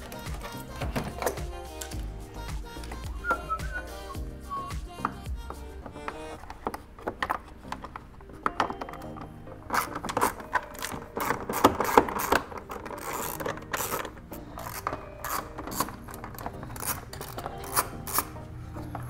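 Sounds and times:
ratchet wrench clicking: 10.8s - 18.3s.

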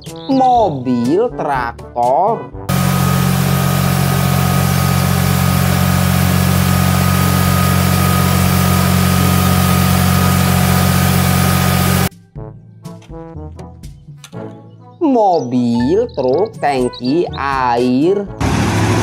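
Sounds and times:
tractor diesel engine running: 2.7s - 12.1s, 18.4s - 19.0s.

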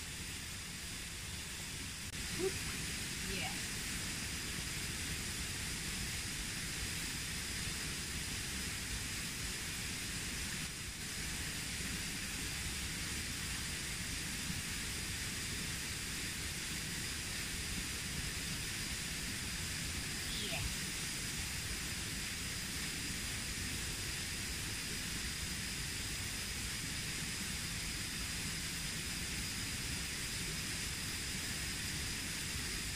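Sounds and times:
faint high steady tone: 20.2s - 21.0s.

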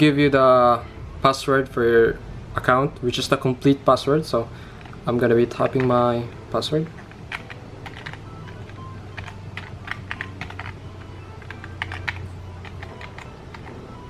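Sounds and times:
soft background music: 0.0s - 14.0s
laptop keyboard key clicks: 7.0s - 13.7s.

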